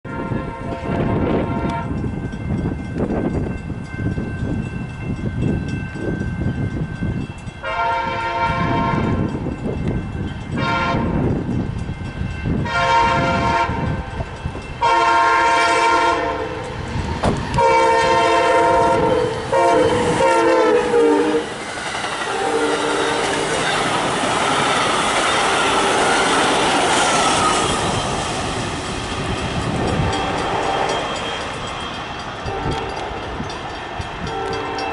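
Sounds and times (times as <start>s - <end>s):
train horn blasts: 0.0s - 2.1s, 7.6s - 9.4s, 10.5s - 11.3s, 12.6s - 14.2s, 14.8s - 16.8s, 17.5s - 21.6s, 22.3s - 23.7s, 29.8s - 31.2s, 32.4s - 33.1s, 34.2s - 34.9s
locomotive passing: 0.1s - 34.9s.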